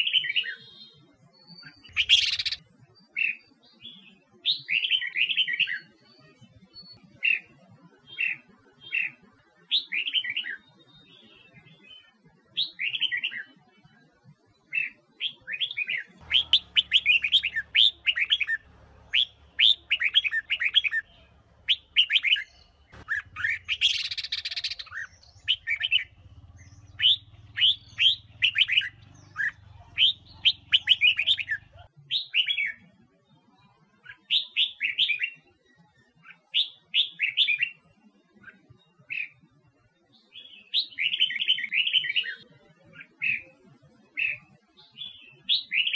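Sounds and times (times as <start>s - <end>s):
bulbul singing whistled notes: 15.3s - 32.5s.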